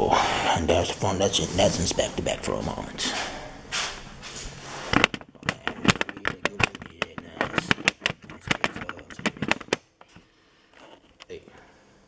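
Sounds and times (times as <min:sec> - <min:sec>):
handling clicks and crackles: 0:04.9 - 0:11.4.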